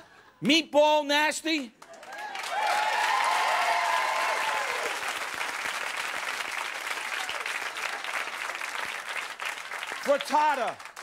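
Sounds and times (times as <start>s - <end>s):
audience applauding: 1.8s - 11.0s
cheers and whoops: 1.9s - 5.2s.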